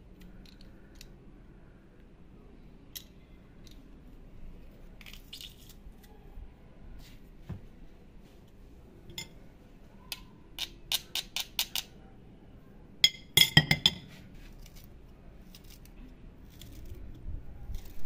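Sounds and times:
metal garlic press tapping clay: 0:10.1 - 0:11.9.

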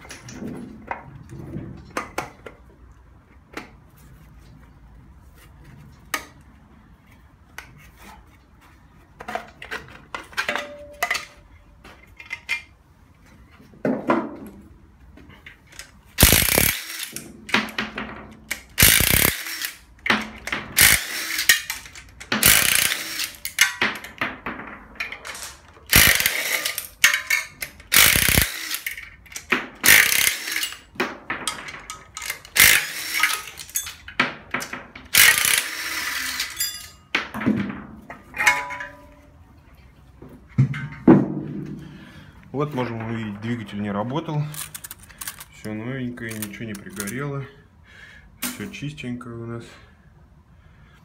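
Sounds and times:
ratchet wrench clicking: 0:16.2 - 0:17.2, 0:18.5 - 0:19.8, 0:20.8 - 0:23.6, 0:25.9 - 0:30.8, 0:32.1 - 0:34.0, 0:35.1 - 0:36.8
metal clinks of tools: 0:36.3 - 0:37.0.

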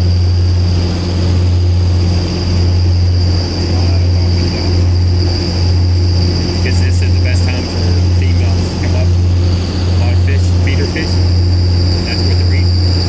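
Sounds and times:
faint high whine: 0:00.0 - 0:13.0
ferry engines droning: 0:00.0 - 0:13.0.

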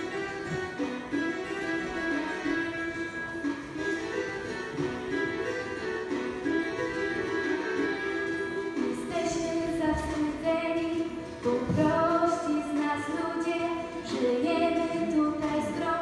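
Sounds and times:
singer on microphone: 0:08.9 - 0:16.0.

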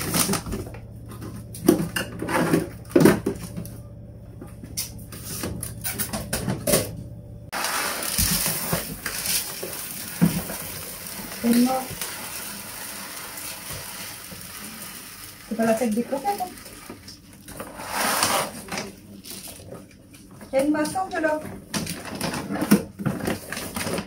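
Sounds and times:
kitchen items clattering: 0:00.0 - 0:03.7, 0:05.1 - 0:24.0
low steady hum: 0:00.0 - 0:17.8.

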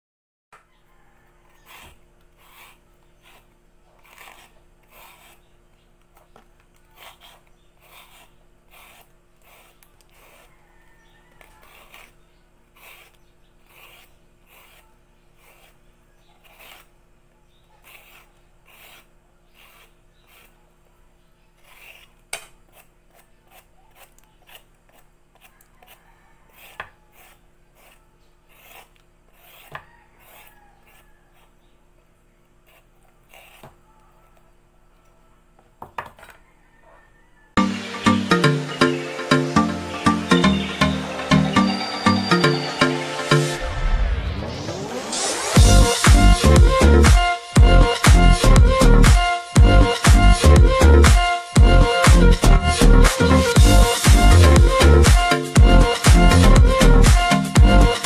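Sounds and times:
peeler scraping vegetable skin: 0:01.5 - 0:17.0, 0:17.8 - 0:20.6, 0:21.6 - 0:31.6, 0:32.6 - 0:33.8.

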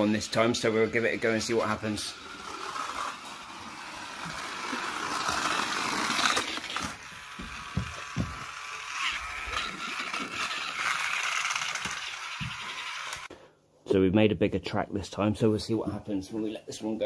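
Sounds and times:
toy car electric motor whirring: 0:00.0 - 0:13.3.

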